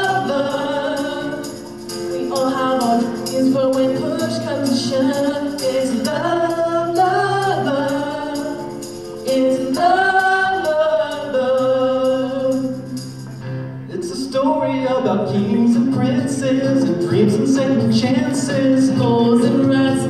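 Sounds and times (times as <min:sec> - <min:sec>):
group singing musical-theatre chorus: 0:00.0 - 0:01.6, 0:02.4 - 0:12.8
jingling tambourine: 0:00.0 - 0:13.6, 0:15.1 - 0:20.0
band playing: 0:00.0 - 0:20.0.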